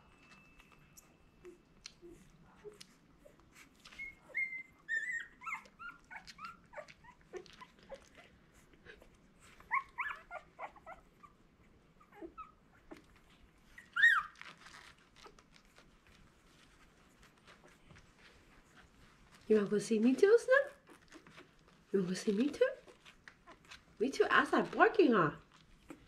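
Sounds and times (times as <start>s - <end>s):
puppies squeaking and whimpering: 1.4s - 19.1s, 20.7s - 21.8s, 22.8s - 24.0s, 25.7s - 26.0s.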